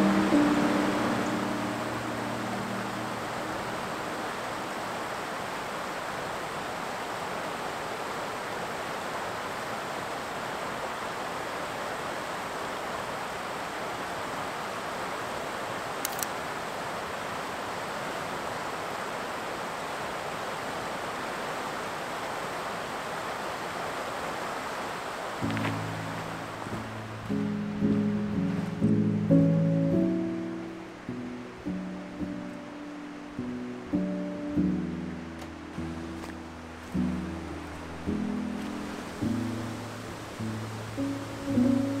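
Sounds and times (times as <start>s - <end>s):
river rushing over rocks: 0.0s - 29.3s, 30.1s - 42.0s
quick clicks: 16.0s - 16.4s.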